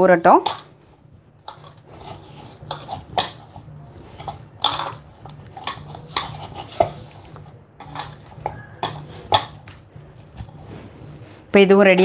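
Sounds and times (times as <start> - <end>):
dishes and utensils knocking: 1.4 - 10.5.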